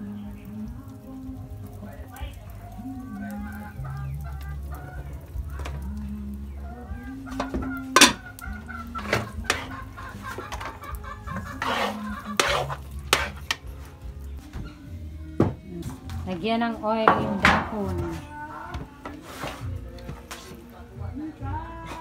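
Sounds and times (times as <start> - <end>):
chickens clucking: 3.1 - 14.0
metal spoon scraping a pan: 7.3 - 14.0, 19.0 - 20.7.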